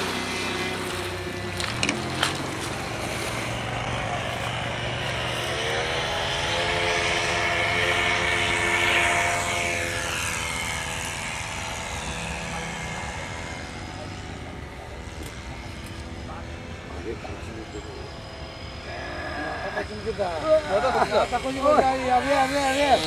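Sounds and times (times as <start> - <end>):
model plane engine buzzing: 0.0 - 23.0.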